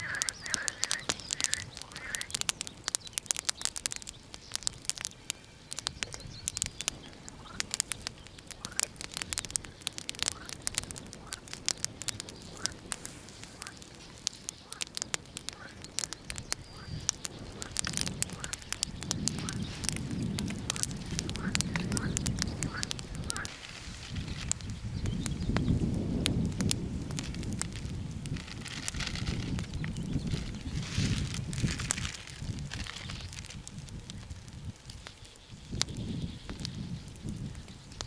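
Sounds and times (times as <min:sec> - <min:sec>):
bird chirps: 0:00.0 - 0:10.5, 0:14.4 - 0:23.5
crackling clicks: 0:00.0 - 0:38.0.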